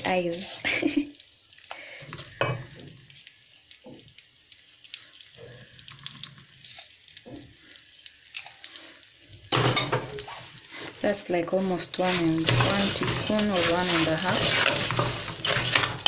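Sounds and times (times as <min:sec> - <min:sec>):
rice frying in a pot: 0:00.0 - 0:16.0
wooden spoon scraping a pot: 0:09.9 - 0:16.0.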